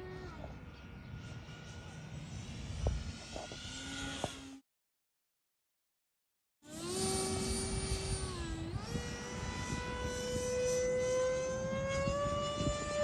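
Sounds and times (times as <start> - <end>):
electric ducted fan jet whining: 0.0 - 4.6, 6.7 - 13.0
rushing wind: 0.6 - 4.5, 6.8 - 13.0.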